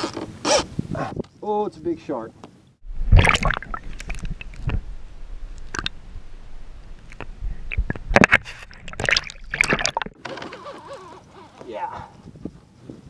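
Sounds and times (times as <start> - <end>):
low underwater rumble: 2.8 - 10.2
water sloshing and splashing: 3.0 - 6.0, 6.8 - 10.6.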